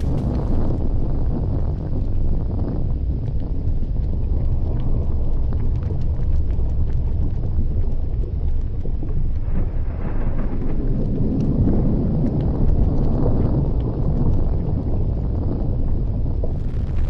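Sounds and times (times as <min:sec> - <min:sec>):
faint crackles: 0:00.0 - 0:17.0
volcanic vent deep rumble: 0:00.0 - 0:17.0.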